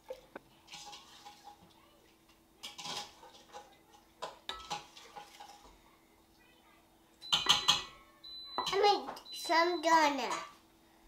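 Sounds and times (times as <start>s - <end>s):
metal cup clinking against glass: 7.3s - 7.9s.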